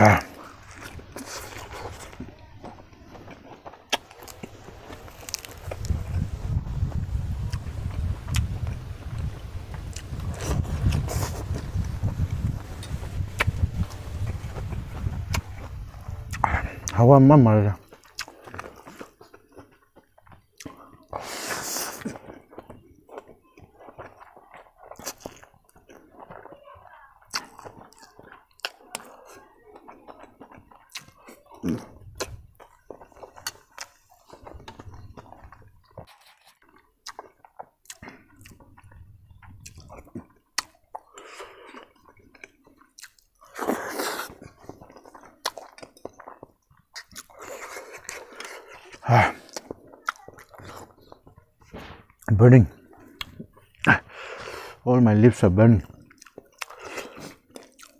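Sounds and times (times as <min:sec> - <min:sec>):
wet chewing with lip smacks: 0:00.0 - 0:02.4, 0:03.2 - 0:17.0, 0:17.8 - 0:26.6, 0:27.2 - 0:54.8, 0:55.8 - 0:57.9
loud noodle slurp: 0:09.2 - 0:13.9, 0:43.4 - 0:44.5.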